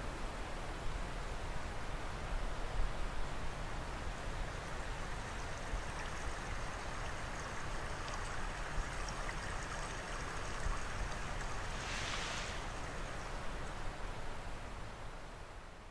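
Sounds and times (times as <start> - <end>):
stream flowing over rocks: 3.6 - 14.5.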